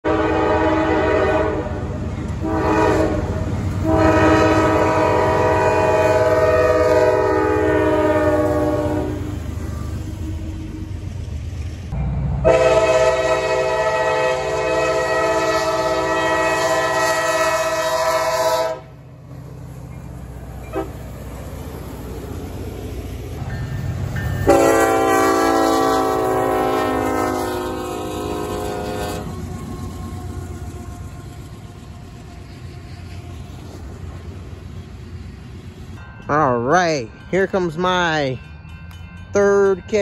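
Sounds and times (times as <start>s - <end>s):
locomotive air horn blasts: 0.0s - 10.4s, 12.4s - 19.0s, 20.7s - 21.0s, 24.4s - 29.5s
freight train rumble: 0.0s - 40.0s.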